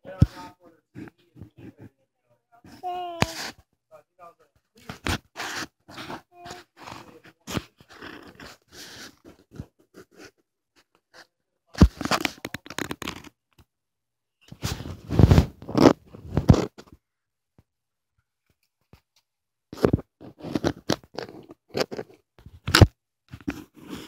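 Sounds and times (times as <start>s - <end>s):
fingers rubbing phone microphone: 0.1s - 1.9s, 2.6s - 3.6s, 4.8s - 10.4s, 11.8s - 13.3s, 14.6s - 16.9s, 19.8s - 22.8s, 23.4s - 24.0s.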